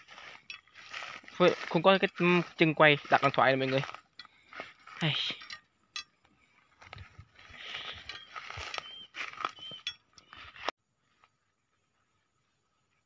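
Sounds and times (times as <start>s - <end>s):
footsteps through dry grass: 0.0s - 5.5s, 6.4s - 12.4s
short high chirps: 7.8s - 10.2s.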